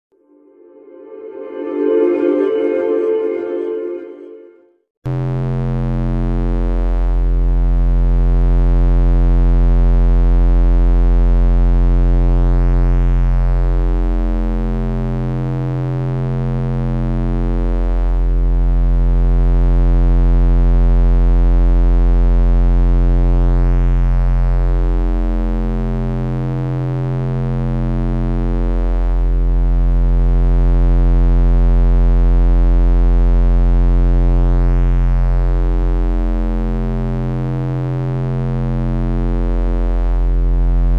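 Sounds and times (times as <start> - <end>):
synthesized bass drone: 33.5 - 40.9.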